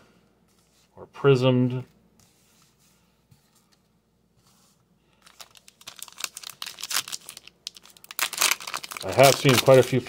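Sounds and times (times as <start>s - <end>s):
foil pack crinkling and tearing: 5.2s - 10.0s.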